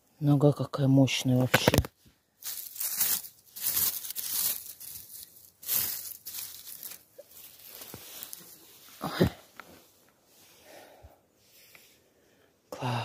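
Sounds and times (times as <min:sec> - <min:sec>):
vegetation rustling and tearing: 0:01.5 - 0:09.0.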